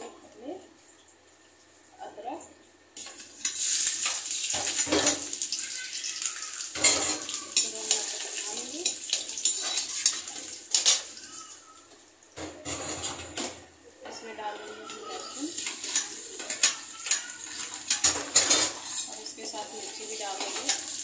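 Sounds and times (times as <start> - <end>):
ginger sizzling in hot oil: 3.0 - 11.6, 15.2 - 21.0
metal spoon clinking on pan: 6.8 - 8.2.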